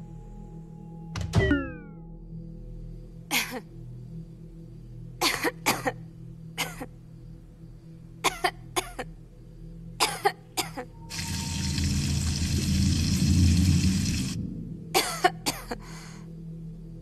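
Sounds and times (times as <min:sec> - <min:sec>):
low ambient music drone: 0:00.0 - 0:17.0
person coughing: 0:05.2 - 0:06.0, 0:15.0 - 0:15.9.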